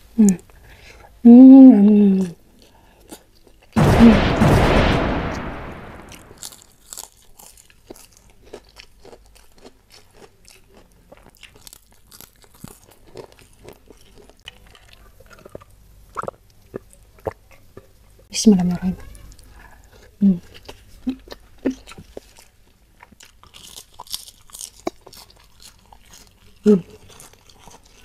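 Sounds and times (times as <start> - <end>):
crunching and chewing: 2.2 - 3.8, 6.4 - 18.2, 19.0 - 28.0
sound effect: 3.8 - 6.4.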